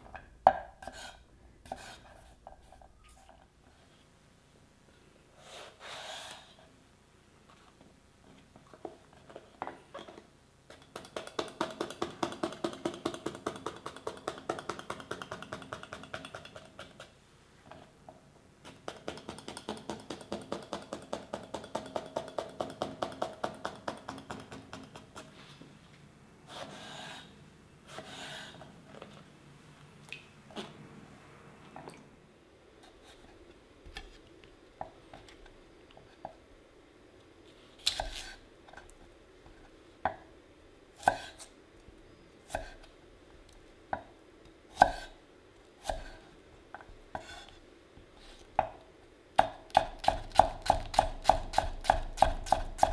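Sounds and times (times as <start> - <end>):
knife chopping on wooden board: 49.4 - 52.9.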